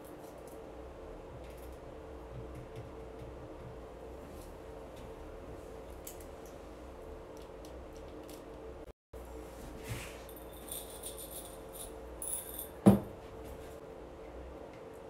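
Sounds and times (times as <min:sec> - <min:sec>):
glass jar knocking on a table: 0:12.8 - 0:13.2.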